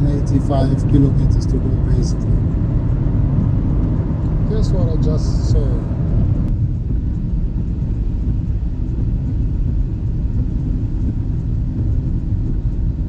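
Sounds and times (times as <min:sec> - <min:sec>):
road and engine rumble in car: 0:00.0 - 0:13.0.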